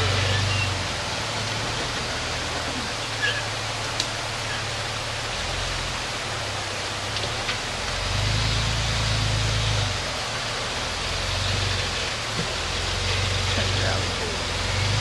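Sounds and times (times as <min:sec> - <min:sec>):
engine rumbling under load: 0:00.0 - 0:15.0.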